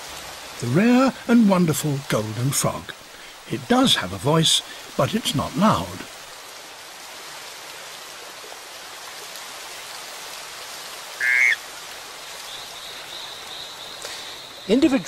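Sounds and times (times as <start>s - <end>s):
stream water rushing: 0.0s - 15.0s
frog pulsed call: 11.2s - 11.6s.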